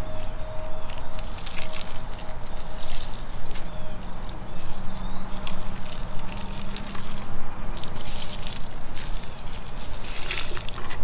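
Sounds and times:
liquid trickling onto mulch: 0:00.0 - 0:11.0.

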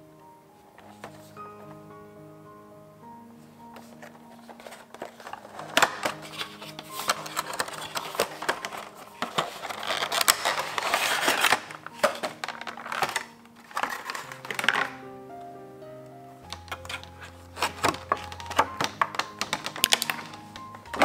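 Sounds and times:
plastic tray crinkling and crackling: 0:03.7 - 0:15.0, 0:16.5 - 0:21.0.

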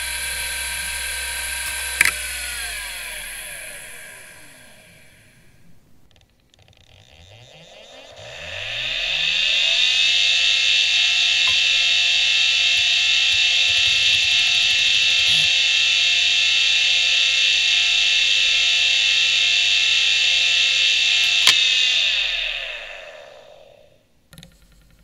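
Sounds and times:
hard drive ticks: 0:00.0 - 0:05.0, 0:11.0 - 0:16.0
hard drive whine: 0:00.0 - 0:25.0.

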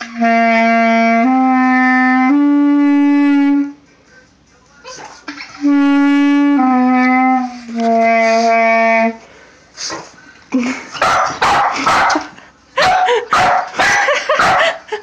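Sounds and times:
clarinet playing low held notes: 0:00.0 - 0:03.8, 0:05.6 - 0:09.2.

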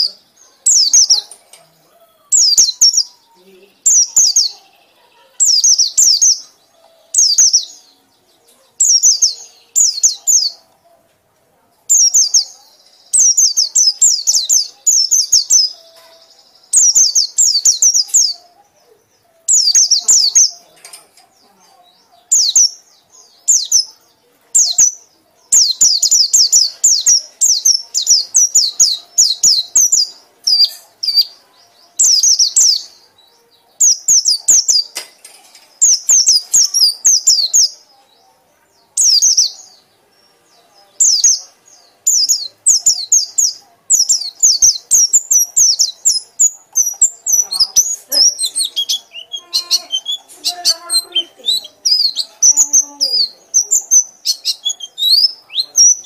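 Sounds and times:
bird chattering song: 0:00.0 - 0:11.0, 0:11.8 - 0:56.0.

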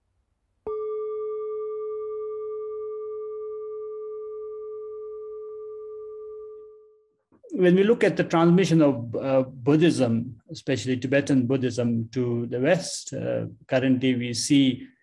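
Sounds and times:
singing bowl ringing: 0:00.7 - 0:07.1.

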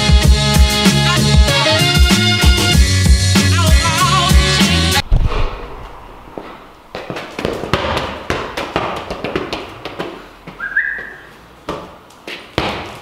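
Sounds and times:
footsteps on hard floor: 0:06.3 - 0:13.0
short rising whistle: 0:10.6 - 0:11.3.

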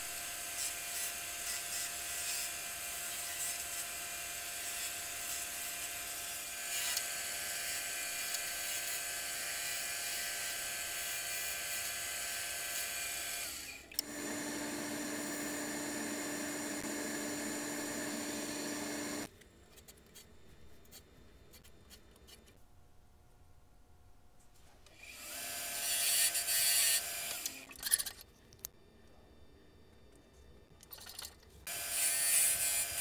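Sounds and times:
wood lathe whirring: 0:13.1 - 0:19.3.

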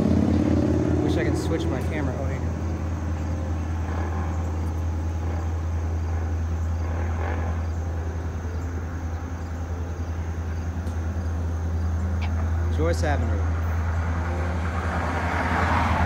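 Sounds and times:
diesel locomotives rumbling: 0:00.0 - 0:16.0.

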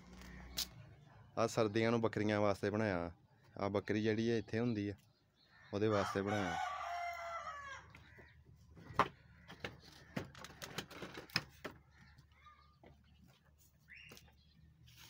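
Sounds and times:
rooster crowing: 0:05.9 - 0:07.9.

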